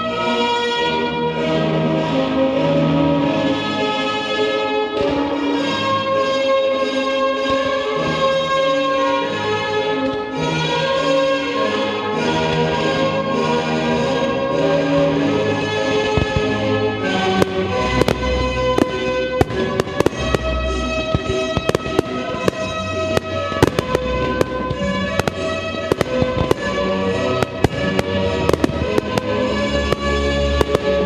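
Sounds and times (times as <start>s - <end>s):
music with long held notes: 0.0s - 31.0s
fireworks bangs: 7.4s - 31.0s.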